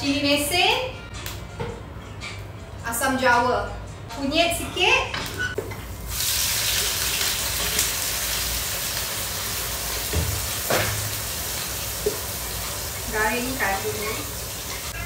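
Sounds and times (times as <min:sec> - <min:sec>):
paste sizzling in hot oil: 0:06.1 - 0:15.0.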